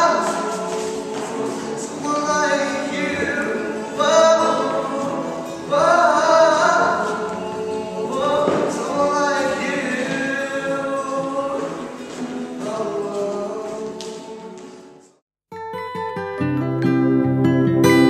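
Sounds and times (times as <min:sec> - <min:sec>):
music with group singing: 0:00.0 - 0:15.2.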